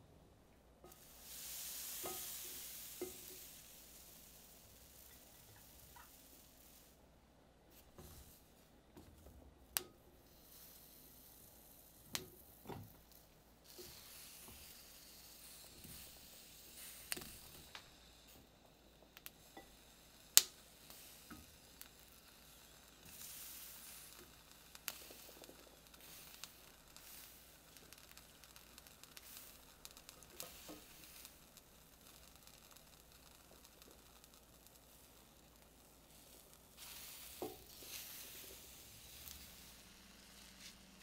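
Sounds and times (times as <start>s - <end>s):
faint steady hiss: 0.0s - 41.0s.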